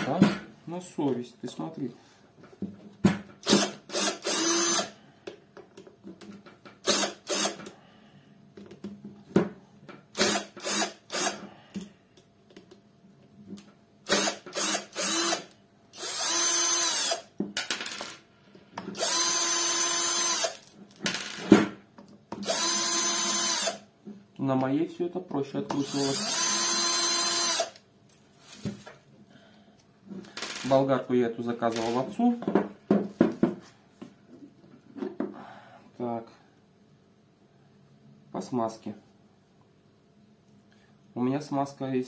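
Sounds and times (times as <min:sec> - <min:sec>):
cordless drill whirring: 0:03.4 - 0:04.9, 0:06.8 - 0:07.7, 0:10.2 - 0:11.4, 0:14.1 - 0:17.3, 0:19.0 - 0:20.6, 0:22.4 - 0:23.8, 0:25.8 - 0:27.8.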